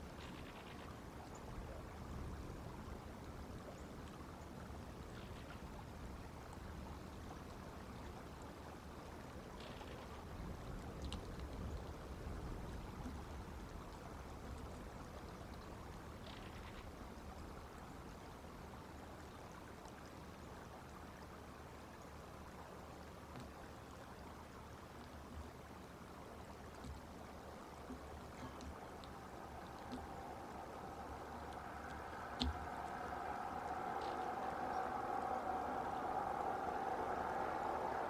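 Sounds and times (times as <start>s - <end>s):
faint rushing background noise: 0.0s - 38.0s
faint high sounds: 28.3s - 38.0s.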